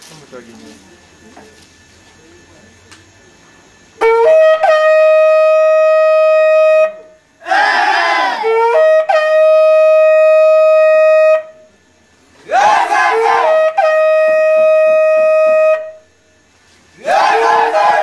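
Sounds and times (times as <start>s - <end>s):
horn blasts: 4.0s - 7.3s, 7.9s - 11.9s, 12.6s - 16.5s.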